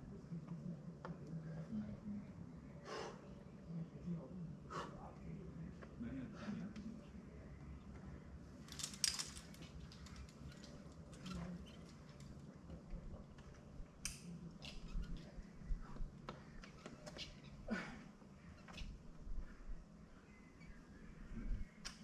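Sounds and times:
climbing gear clinking: 8.6 - 12.4.

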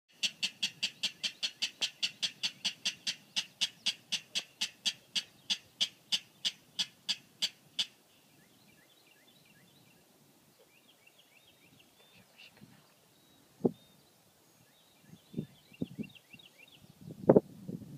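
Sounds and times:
rail bird calling: 0.1 - 9.8.

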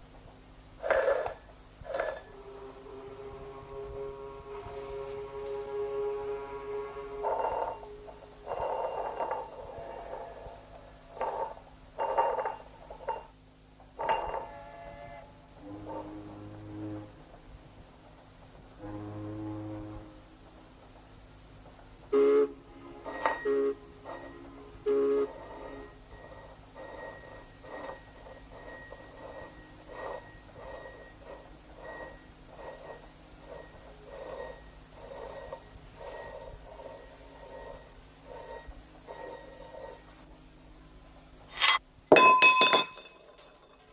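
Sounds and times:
glass jar scraping on tabletop: 0.8 - 13.4, 14.0 - 17.2, 22.8 - 40.2.

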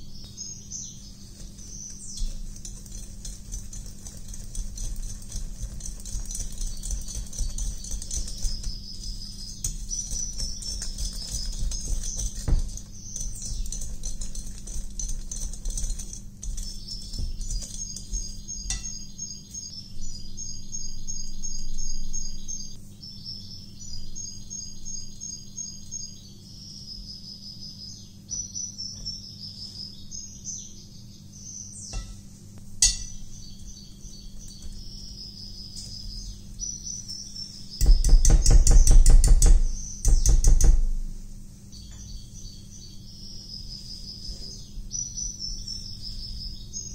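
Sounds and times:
high bird-like chirping: 0.0 - 38.2
wire whisk beating in glass bowl: 1.4 - 19.1, 32.8 - 33.2.

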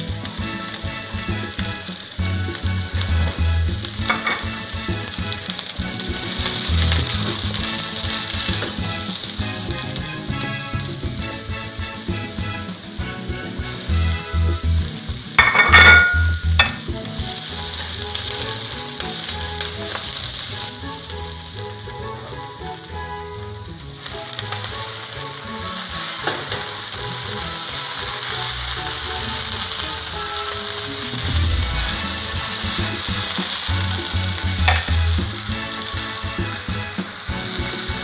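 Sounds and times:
vegetables sizzling in wok: 0.0 - 38.0
spatula stirring in wok: 24.6 - 38.0.

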